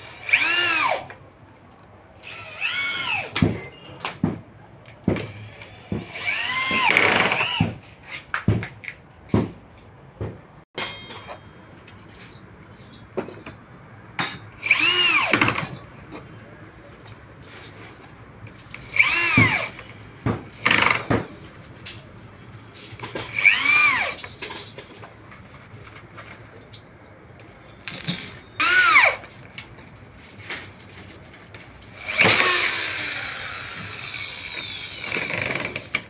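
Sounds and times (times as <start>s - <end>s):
electric drill drilling into board: 0.0s - 1.0s, 2.2s - 3.3s, 5.3s - 7.7s, 14.6s - 15.4s, 18.9s - 19.7s, 23.4s - 24.1s, 28.6s - 29.2s, 32.0s - 35.9s.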